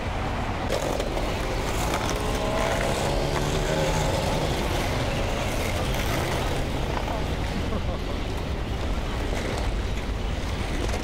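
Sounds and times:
city traffic rumble: 0.0s - 11.0s
passing vehicle engine hum: 1.0s - 7.6s.

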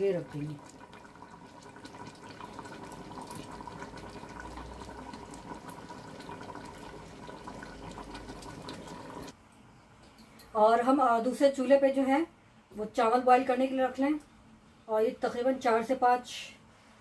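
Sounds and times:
gravy bubbling and popping: 0.0s - 9.4s.

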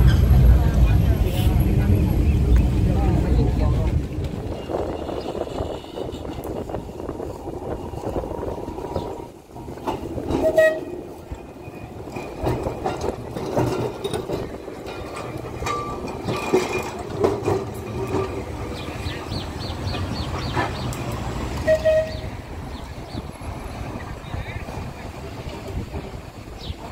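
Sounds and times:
tram running hum: 0.0s - 26.9s
tram wheels clanking on rails: 0.0s - 26.9s
short horn-like tones: 21.6s - 22.4s.

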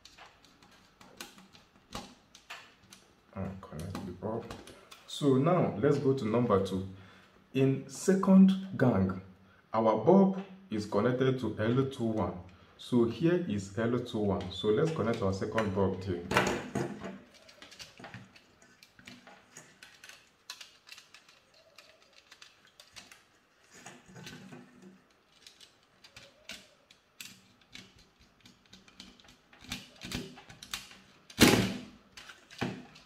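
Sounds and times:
plastic and wire clicks and scrapes: 0.0s - 3.1s, 14.4s - 31.4s, 32.1s - 33.0s.

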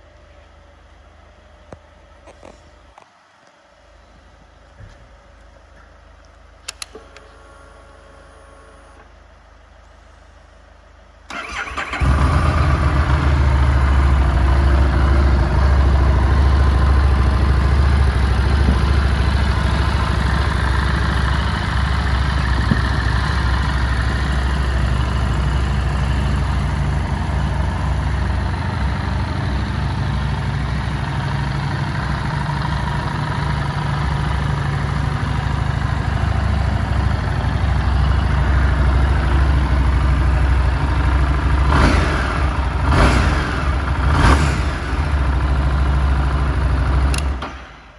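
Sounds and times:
ignition click: 6.6s - 7.4s, 47.1s - 47.6s
motorcycle engine idling: 11.3s - 47.4s.

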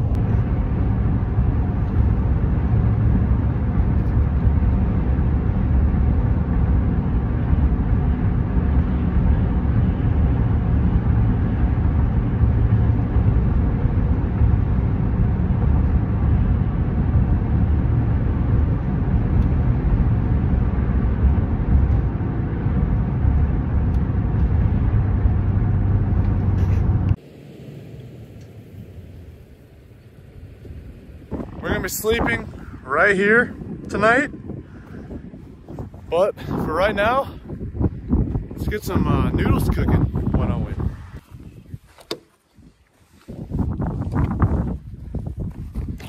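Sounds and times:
road and engine rumble inside truck: 0.0s - 32.8s.

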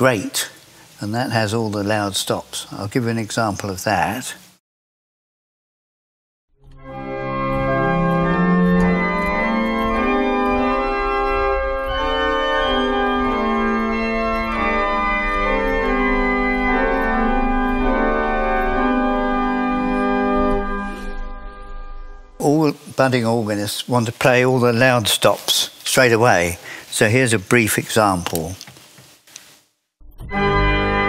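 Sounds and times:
pipe organ chords: 6.7s - 23.4s, 30.1s - 31.0s.

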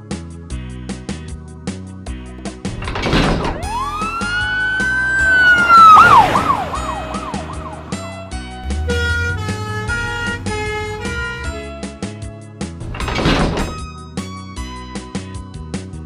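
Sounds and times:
rush of noise: 2.8s - 8.9s
police siren wailing and yelping: 3.5s - 11.4s.

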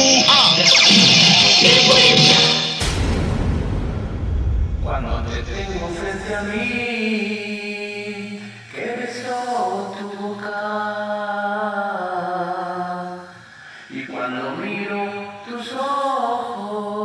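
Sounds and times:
slow choir-like chords: 6.2s - 17.0s.

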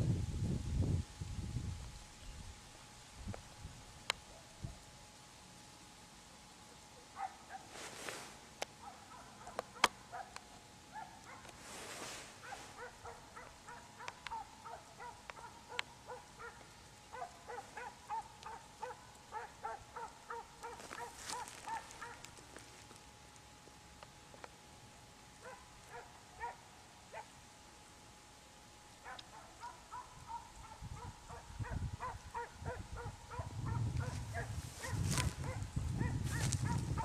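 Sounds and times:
dog yelping: 12.4s - 16.6s, 17.2s - 22.3s, 29.1s - 36.8s.

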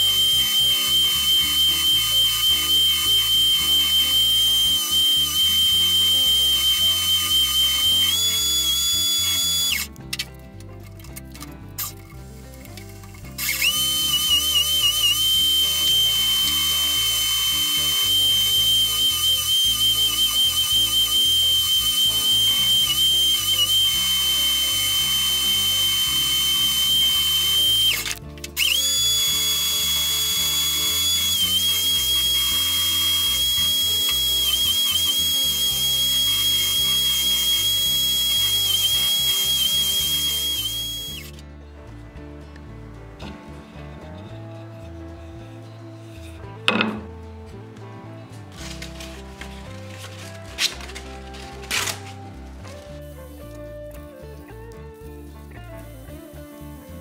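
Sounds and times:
belt sander whining: 0.0s - 10.0s, 12.9s - 41.4s.

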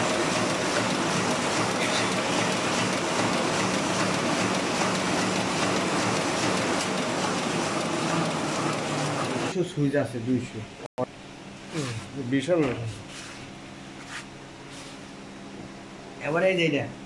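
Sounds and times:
printing press clattering: 0.0s - 9.6s.

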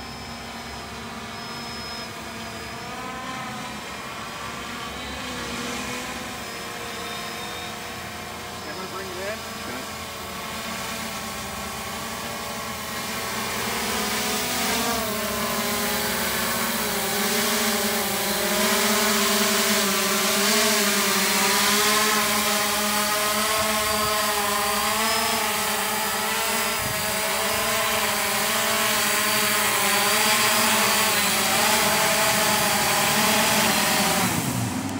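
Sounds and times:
drone propellers buzzing: 0.0s - 34.9s.

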